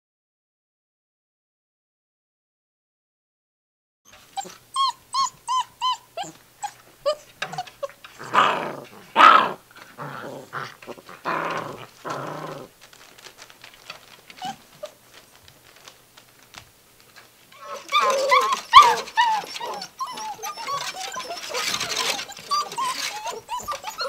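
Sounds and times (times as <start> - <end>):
puppies yipping: 4.1 - 9.6, 14.4 - 15.0, 17.6 - 24.0
puppies whining: 4.1 - 12.7, 13.8 - 15.0, 17.6 - 24.0
puppies growling: 4.2 - 15.0, 17.6 - 24.0.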